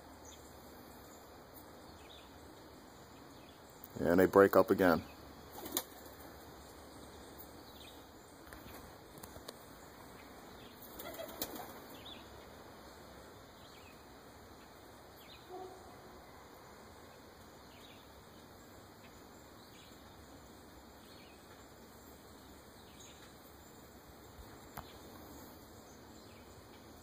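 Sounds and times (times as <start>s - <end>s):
pigeon wings flapping: 5.5s - 6.2s, 10.8s - 12.0s.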